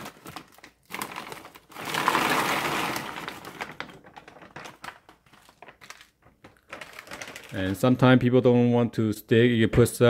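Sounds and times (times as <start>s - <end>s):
frozen shrimp clattering into water: 0.0s - 7.8s
plastic bag crinkling: 0.0s - 8.1s.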